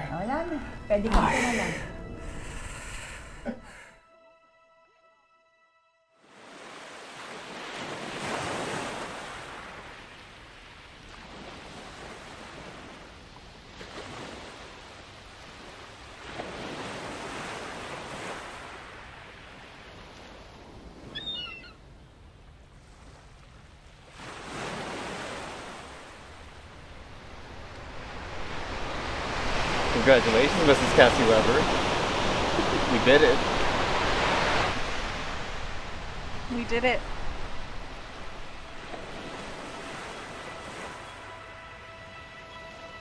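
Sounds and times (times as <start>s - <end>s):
ocean waves breaking on shore: 6.2s - 43.0s.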